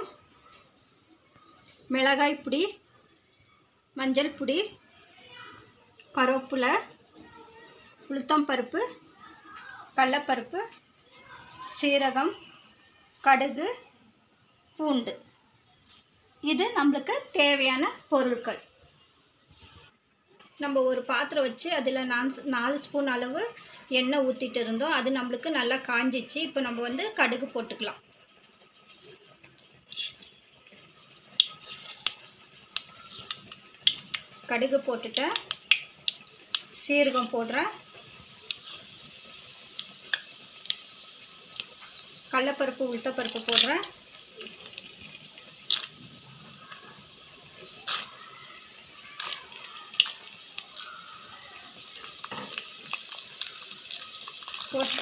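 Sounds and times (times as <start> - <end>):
seeds crackling in hot oil: 0.0 - 13.9, 15.8 - 55.0
sharp pops: 35.1 - 36.8.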